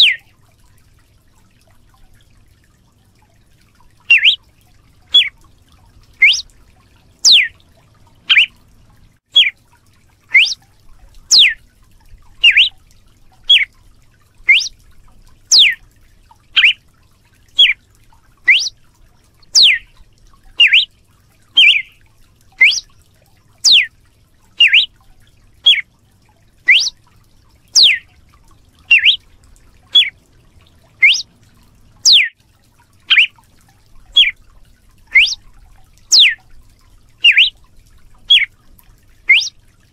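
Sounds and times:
bird whistling sharp slurred calls: 0.0s - 0.2s, 4.1s - 4.4s, 5.1s - 5.3s, 6.2s - 6.5s, 7.2s - 7.5s, 8.2s - 8.5s, 10.3s - 10.6s, 11.3s - 11.6s, 12.4s - 12.8s, 13.5s - 13.7s, 14.5s - 14.7s, 15.5s - 15.8s, 16.6s - 16.8s, 17.6s - 17.8s, 18.5s - 18.8s, 19.5s - 19.9s, 20.6s - 20.9s, 21.6s - 22.0s, 22.6s - 22.9s, 23.6s - 23.9s, 24.6s - 24.9s, 25.6s - 25.8s, 26.7s - 27.0s, 27.8s - 28.1s, 28.9s - 29.2s, 29.9s - 30.1s, 31.0s - 31.3s, 32.1s - 32.3s, 33.1s - 33.3s, 34.2s - 34.4s, 35.1s - 35.4s, 36.1s - 36.4s, 37.2s - 37.6s, 38.3s - 38.5s, 39.3s - 39.6s.

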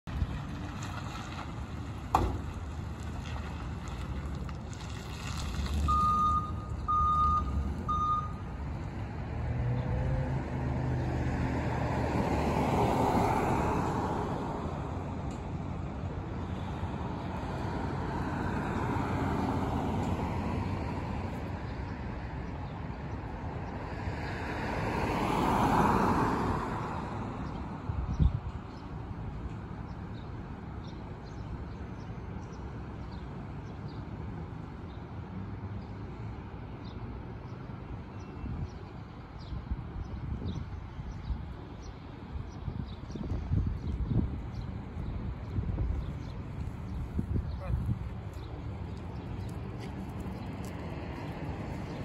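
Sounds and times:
passing traffic: 0.0s - 52.0s
reversing alarm beeping: 5.9s - 8.4s.

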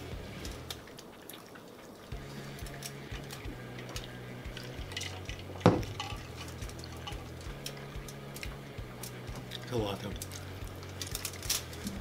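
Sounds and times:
food handled on aluminium foil: 10.2s - 12.0s.

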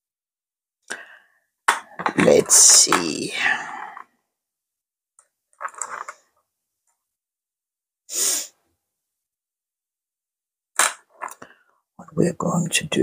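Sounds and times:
person breathing: 0.9s - 1.5s, 3.3s - 4.1s, 8.1s - 8.6s.

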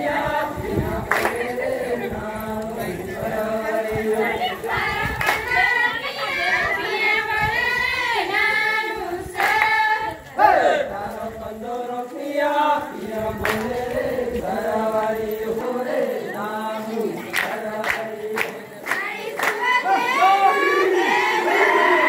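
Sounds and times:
group singing: 0.0s - 22.0s
hand claps: 1.1s - 1.5s, 5.2s - 5.5s, 9.4s - 9.8s, 13.4s - 14.0s, 17.3s - 19.7s.

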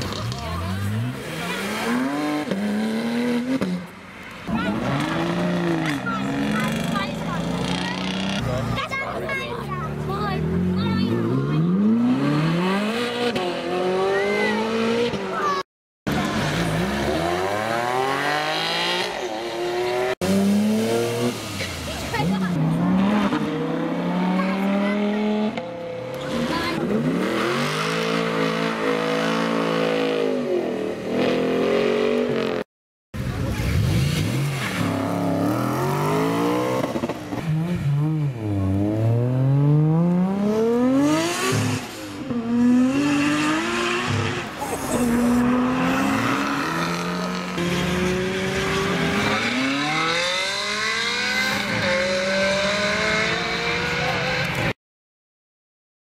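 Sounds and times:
sports car engine accelerating: 33.5s - 54.7s.

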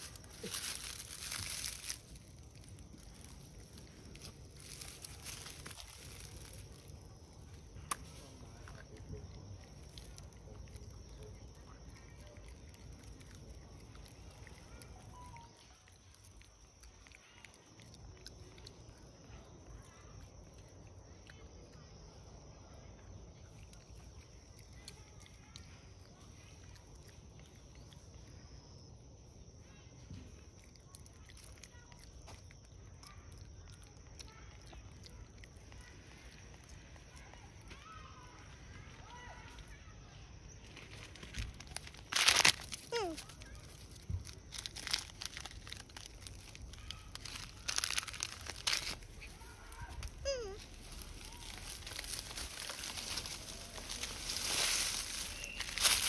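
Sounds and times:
plastic wrapper crinkling: 0.0s - 11.2s, 40.7s - 56.0s.

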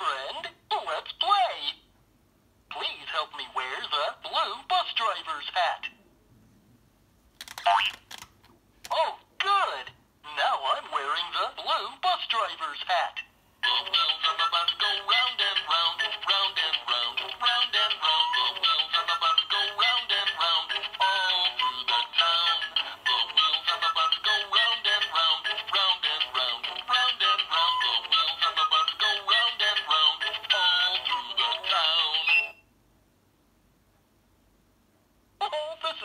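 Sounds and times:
toy singing over electronic music: 10.6s - 12.3s, 13.6s - 32.6s.

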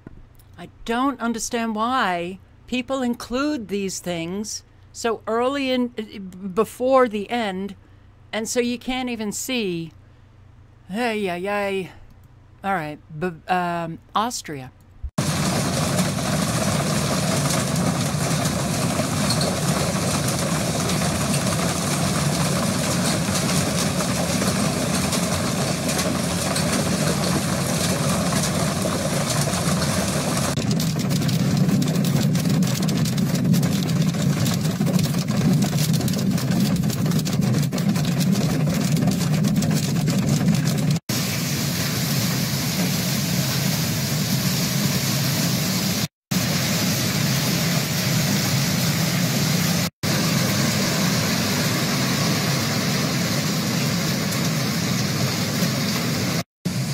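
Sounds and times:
hailstones clicking on surfaces: 15.2s - 41.0s
roar of hail and wind: 15.2s - 41.0s.

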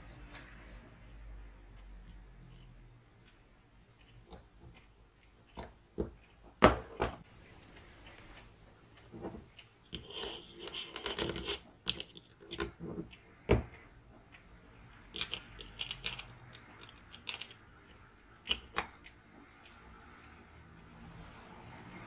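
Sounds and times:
small clicks of parts: 14.3s - 20.3s.

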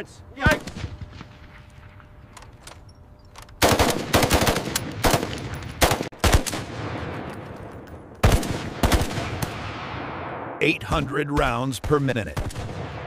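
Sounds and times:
machine gun firing: 3.6s - 7.3s, 8.2s - 10.2s.

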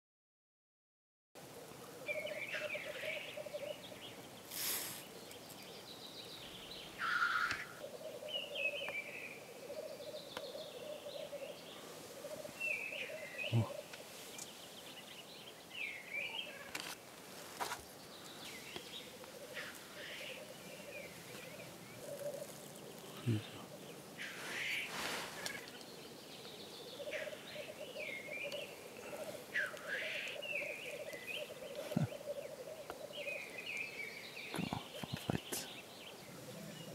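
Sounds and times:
short higher bird calls: 2.0s - 5.2s, 6.8s - 14.6s, 17.6s - 25.9s, 26.8s - 36.9s
grouse hissing sneeze calls: 4.5s - 5.1s, 24.2s - 25.6s
grouse bubbling cooing song: 19.1s - 24.3s, 26.9s - 33.5s.

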